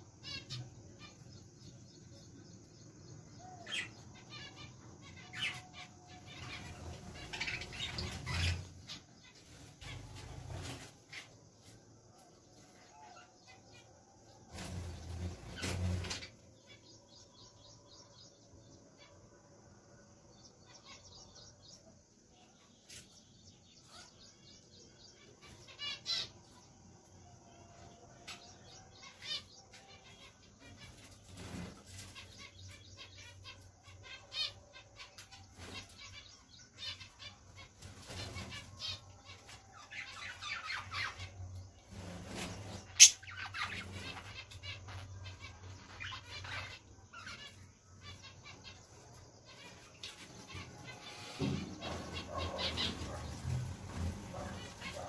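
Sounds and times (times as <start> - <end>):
wings fluttering: 6.4 - 11.8, 14.2 - 16.4, 30.7 - 32.6, 37.6 - 45.1, 46.0 - 55.0
budgerigars chirping: 42.9 - 48.8.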